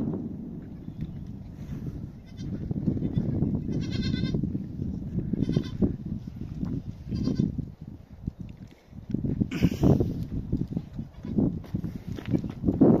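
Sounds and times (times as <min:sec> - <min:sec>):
low rumbling noise: 0:00.0 - 0:12.4
goat bleating: 0:02.2 - 0:04.4, 0:05.4 - 0:05.8, 0:07.1 - 0:07.5.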